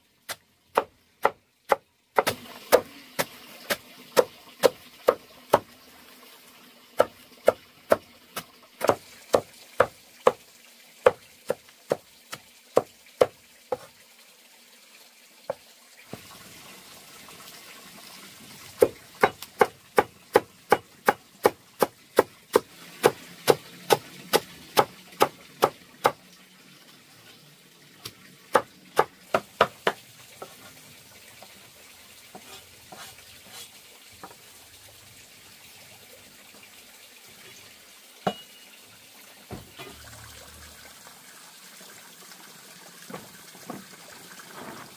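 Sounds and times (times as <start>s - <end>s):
knife chopping greens on stone: 28.6s - 30.6s.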